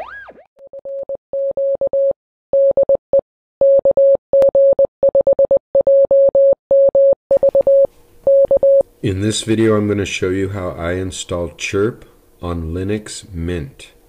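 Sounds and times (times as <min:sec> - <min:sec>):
morse code beeps: 0:03.6 - 0:08.8.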